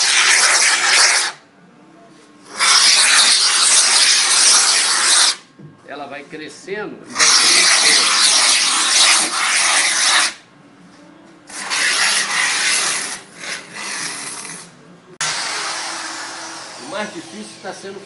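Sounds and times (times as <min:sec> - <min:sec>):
aerosol foam can spraying: 0:00.0 - 0:01.4, 0:02.5 - 0:05.4, 0:07.1 - 0:10.4, 0:11.5 - 0:17.6.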